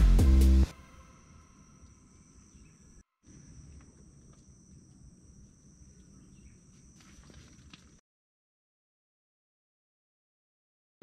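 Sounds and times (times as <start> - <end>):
high-pitched insect chirring: 0.7 - 7.1.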